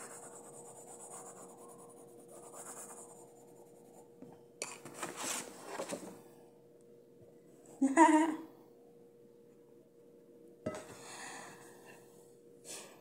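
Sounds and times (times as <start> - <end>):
pen scratching on paper: 0.0 - 4.0
paper rustling: 4.8 - 6.2.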